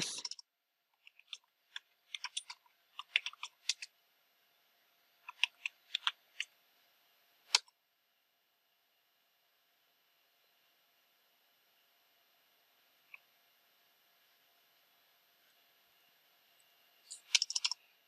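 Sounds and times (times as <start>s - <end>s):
typing on computer keyboard: 2.1s - 3.9s, 5.3s - 6.2s, 17.1s - 17.8s.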